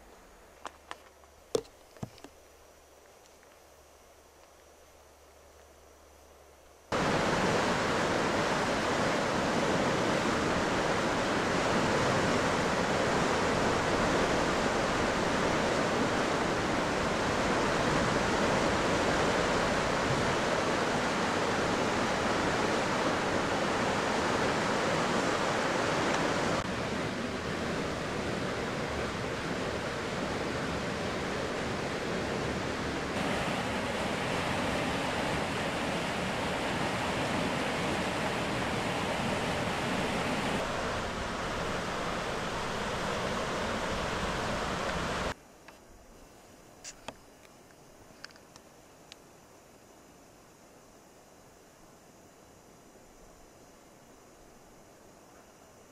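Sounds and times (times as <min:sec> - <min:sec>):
steady rushing noise: 0:06.9 - 0:45.4.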